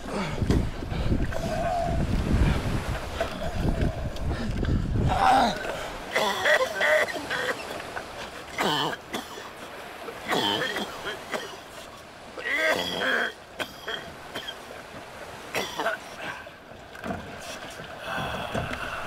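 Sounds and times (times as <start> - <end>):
person making wordless vocal sounds: 3.3 - 5.8.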